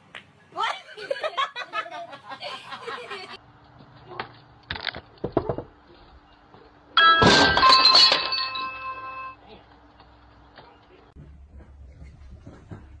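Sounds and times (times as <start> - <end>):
glass shattering: 7.0 - 9.4.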